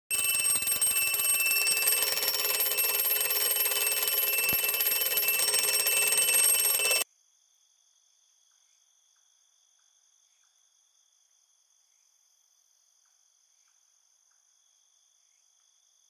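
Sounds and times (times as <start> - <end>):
alarm clock bells ringing: 0.1 - 7.0.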